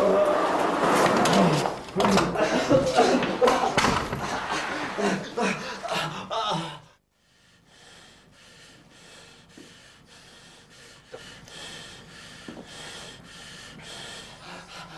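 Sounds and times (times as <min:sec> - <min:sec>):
man breathing hard in pain: 0:05.0 - 0:14.9.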